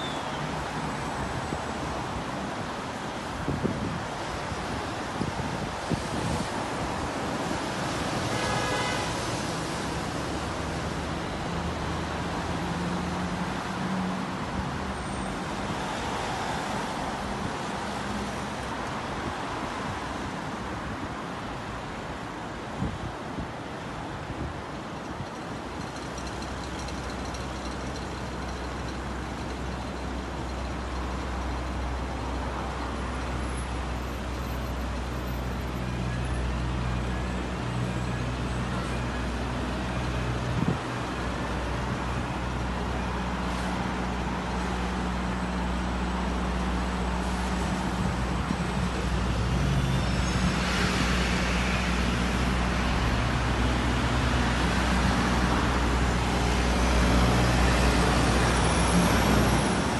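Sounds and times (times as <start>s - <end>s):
traffic engine hum: 23.7s - 59.9s
tyres hissing on wet road: 42.6s - 59.9s.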